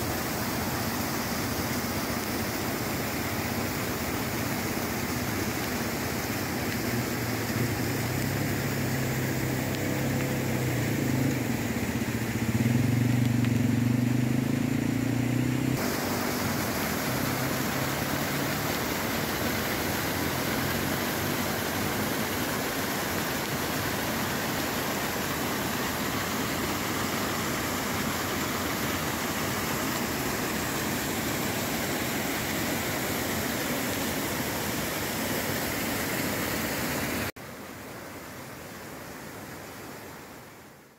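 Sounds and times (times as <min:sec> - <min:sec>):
floodwater rushing: 0:00.0 - 0:40.9
vehicle engine humming: 0:06.8 - 0:18.8.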